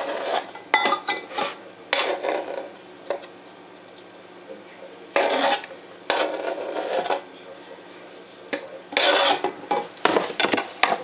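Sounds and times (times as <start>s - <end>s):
fruit pieces scraped off cutting board: 5.1s - 7.2s, 8.9s - 10.6s.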